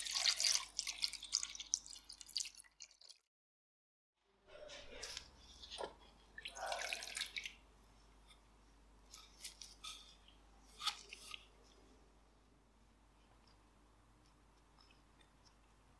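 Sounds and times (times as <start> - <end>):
liquid splashing and dripping: 0.0 - 3.2.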